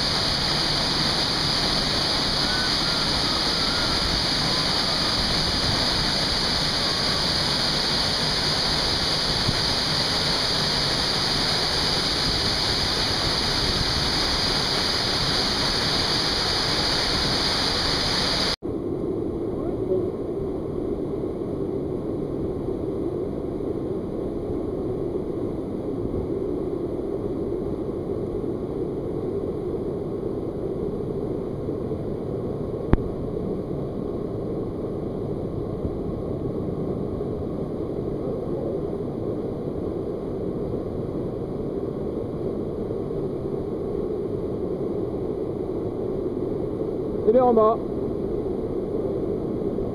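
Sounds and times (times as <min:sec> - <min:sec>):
waterfall rushing: 0:00.0 - 0:18.6.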